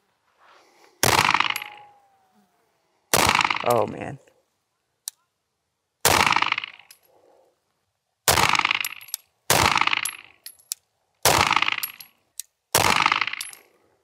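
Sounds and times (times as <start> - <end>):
pistol shots: 1.0 - 1.8, 3.1 - 3.7, 6.0 - 6.8, 8.3 - 10.2, 11.2 - 12.1, 12.7 - 13.6.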